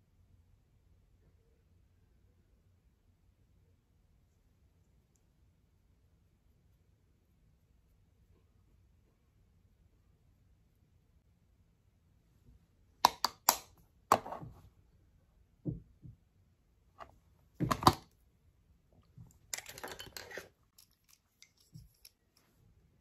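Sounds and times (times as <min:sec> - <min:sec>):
makeup pencils clicking: 0:13.1 - 0:13.7
pencils set down with thuds: 0:17.6 - 0:18.1.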